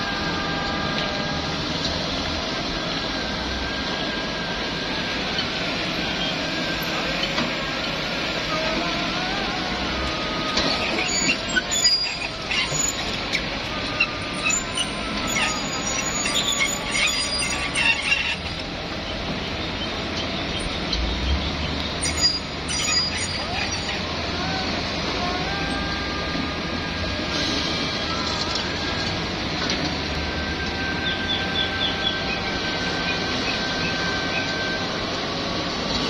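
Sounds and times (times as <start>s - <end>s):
excavator engines and hydraulics: 0.0s - 36.0s
high metallic squeals: 9.8s - 18.7s, 19.5s - 35.7s.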